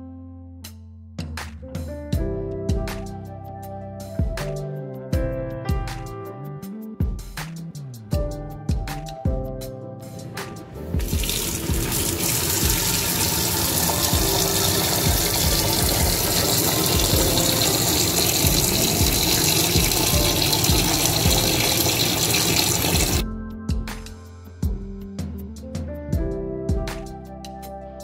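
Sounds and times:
guitar music: 10.0s - 23.2s
tap water splashing into bowl: 11.0s - 23.2s.

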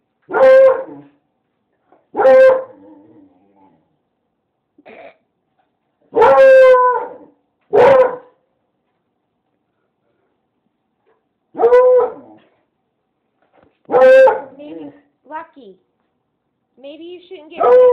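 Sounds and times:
dog barking: 0.3s - 1.1s, 2.1s - 2.8s, 6.1s - 8.4s, 11.6s - 12.4s, 13.9s - 14.6s, 17.6s - 17.9s.

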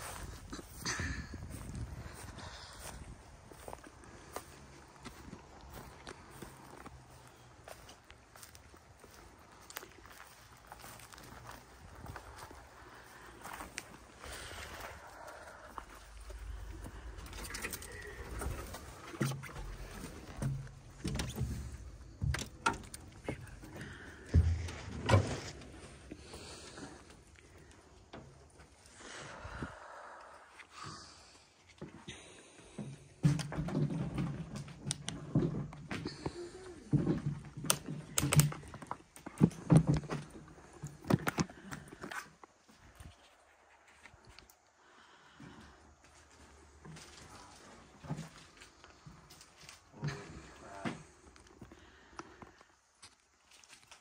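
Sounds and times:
footsteps crunching over debris: 0.0s - 28.9s, 32.8s - 54.0s.

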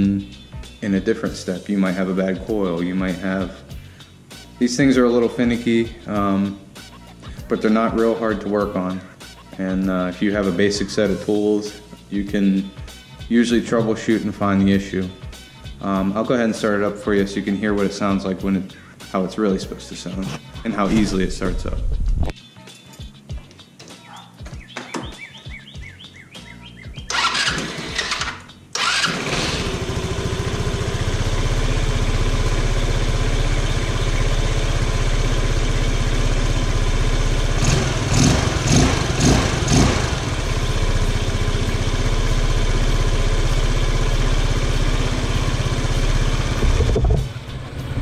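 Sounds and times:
scooter engine idling and revving: 27.0s - 48.0s
scooter engine cranking: 27.1s - 48.0s.

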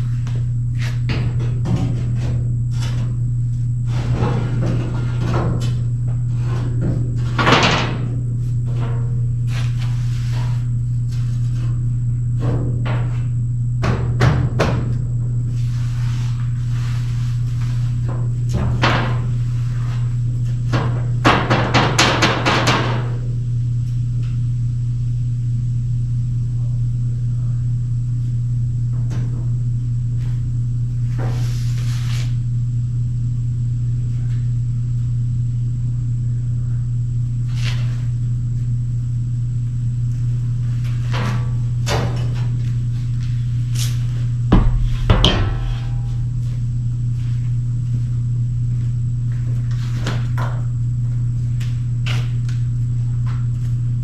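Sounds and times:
steady low hum: 0.0s - 54.0s
metal clanks and knocks: 44.6s - 46.6s.

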